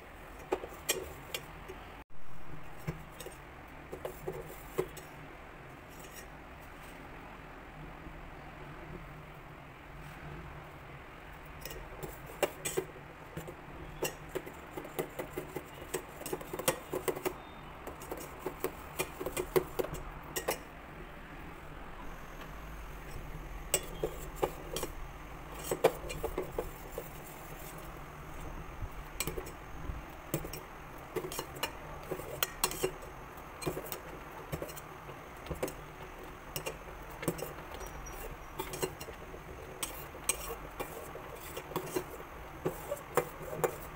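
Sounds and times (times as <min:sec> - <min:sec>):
spoon scraping metal pot: 0:11.6 - 0:12.9, 0:13.8 - 0:20.6, 0:22.2 - 0:43.9.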